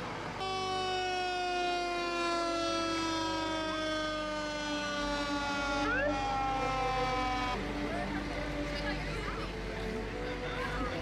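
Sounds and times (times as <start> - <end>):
fire engine siren winding down: 0.3 - 7.6.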